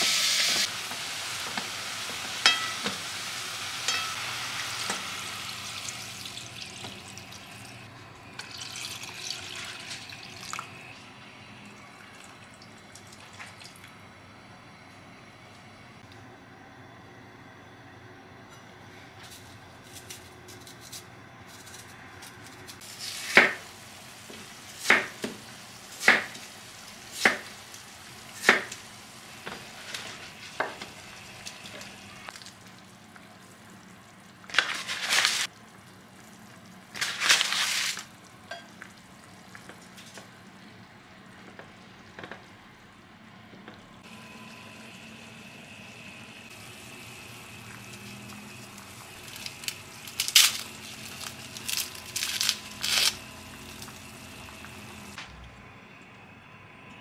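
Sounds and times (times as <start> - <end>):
soup pot hissing: 0.0 - 2.4
soup simmering: 46.4 - 50.1
garlic skin crackling: 49.0 - 53.8.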